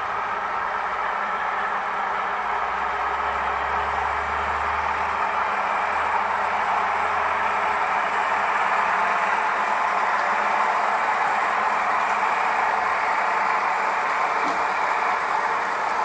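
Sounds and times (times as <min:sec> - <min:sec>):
model locomotive motors: 0:00.0 - 0:16.0
model train wheels on rails: 0:00.0 - 0:16.0.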